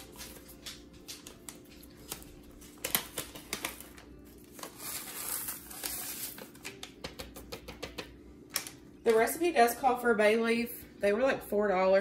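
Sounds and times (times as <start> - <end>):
paper packet crinkling: 0.0 - 6.8.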